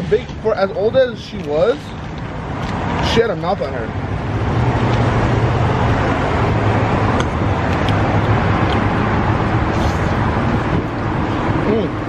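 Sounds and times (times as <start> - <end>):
road traffic noise: 0.0 - 12.0
vehicle engine humming: 0.0 - 12.0.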